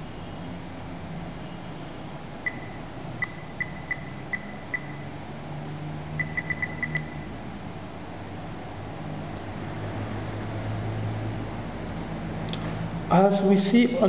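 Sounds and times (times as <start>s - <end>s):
short high key-tap beeps: 2.5s - 5.0s, 6.2s - 7.3s.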